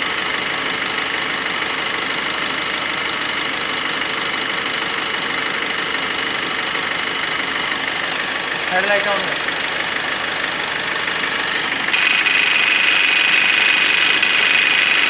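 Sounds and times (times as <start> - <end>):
car engine idling: 0.0 - 15.0
tensioner pulley bearing noise: 11.7 - 15.0.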